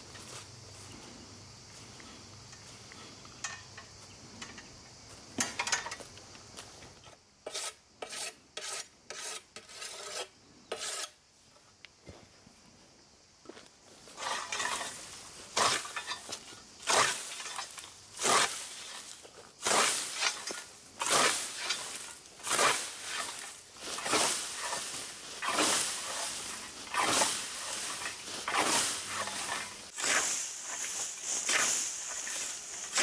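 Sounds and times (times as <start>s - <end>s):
scythe swishing through grass: 14.2s - 33.0s.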